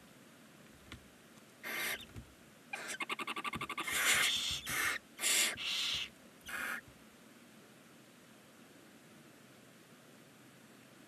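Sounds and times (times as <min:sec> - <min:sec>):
owl chicks hissing: 0:01.6 - 0:02.1, 0:02.7 - 0:06.9.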